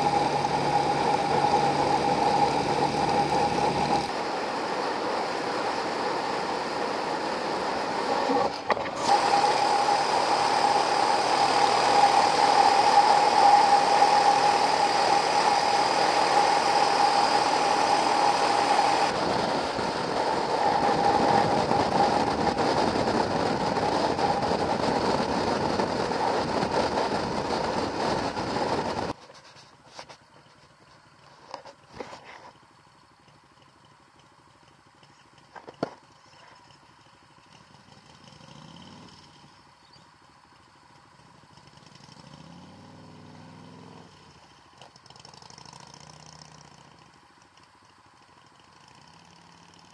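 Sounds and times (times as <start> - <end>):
motorcycle engine: 0.0 - 29.2, 33.2 - 49.9
road noise: 0.0 - 49.9
wind rush: 9.0 - 29.1.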